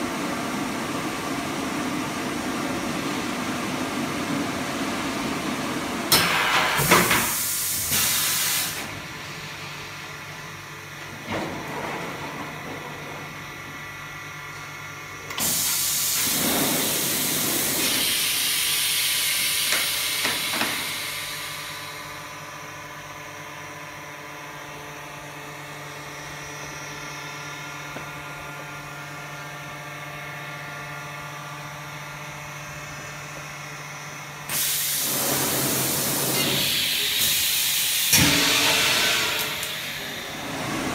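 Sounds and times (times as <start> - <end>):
machine hum: 20.0 - 40.9.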